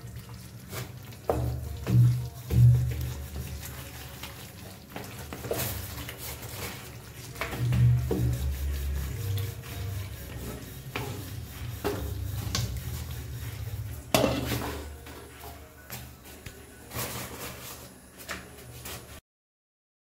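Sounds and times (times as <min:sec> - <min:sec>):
curry simmering: 0:00.0 - 0:15.5
spatula knocking and scraping pan: 0:01.2 - 0:03.8, 0:05.0 - 0:15.5.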